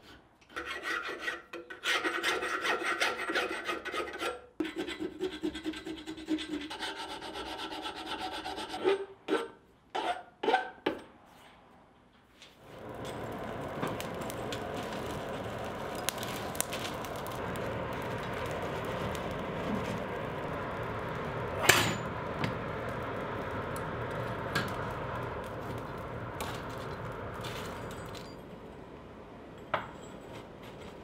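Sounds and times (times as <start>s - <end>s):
fire crackles: 12.4s - 31.0s
forge fire rushing hiss: 12.6s - 28.1s
sharp metal clank: 21.6s - 22.1s.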